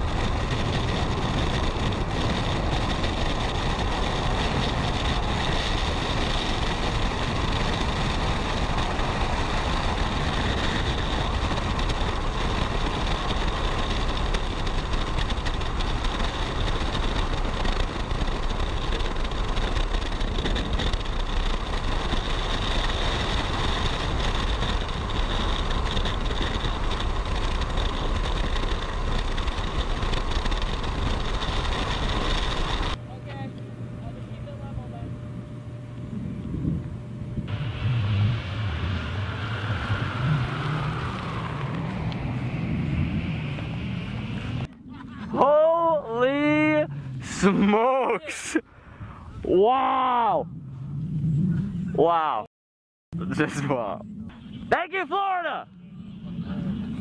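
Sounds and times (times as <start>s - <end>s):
freefall wind rushing on microphone: 0.0s - 33.0s, 34.4s - 52.3s.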